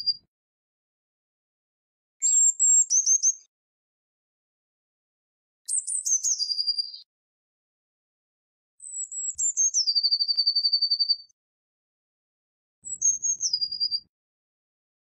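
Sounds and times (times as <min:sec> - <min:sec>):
bird singing with trill: 0:00.0 - 0:00.3, 0:02.2 - 0:03.5, 0:05.7 - 0:07.1, 0:08.8 - 0:11.4, 0:12.8 - 0:14.1.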